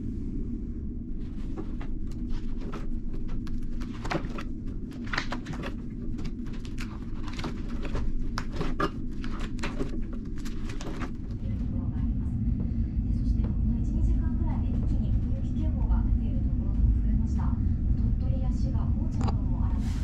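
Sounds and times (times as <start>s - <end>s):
plastic binder pages flipping: 1.2s - 11.4s
ferry engine rumble: 9.0s - 20.0s.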